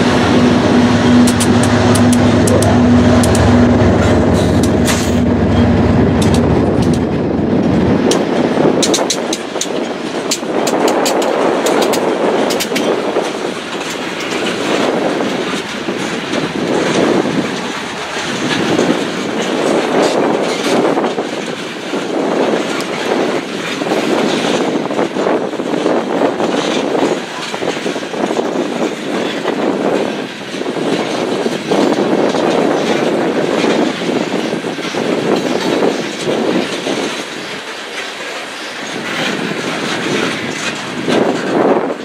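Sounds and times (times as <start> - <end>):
low locomotive rumble: 0.0 - 42.0
train wheels clattering over rail joints: 0.0 - 42.0
sharp clicks: 1.2 - 3.5.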